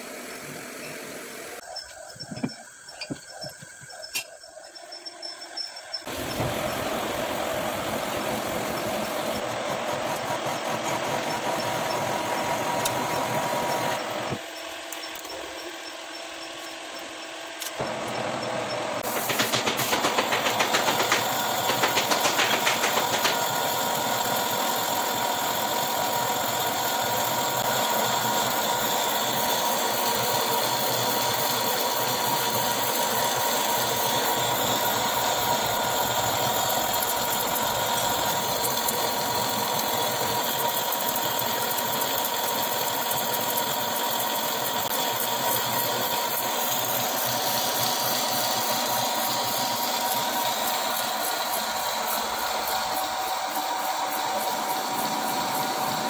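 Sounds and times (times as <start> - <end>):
metal lathe cutting with steady whine: 1.6 - 56.0
rapid rattle: 19.0 - 24.8.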